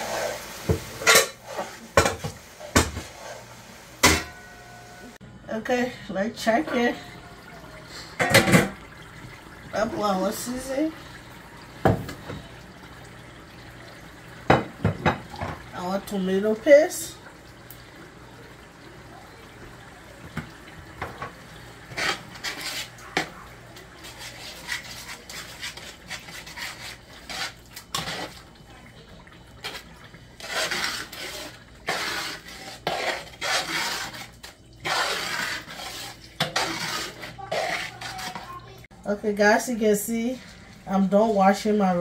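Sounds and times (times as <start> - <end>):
metal spoon scraping a pot: 21.9 - 23.3, 24.0 - 28.4, 30.4 - 38.7.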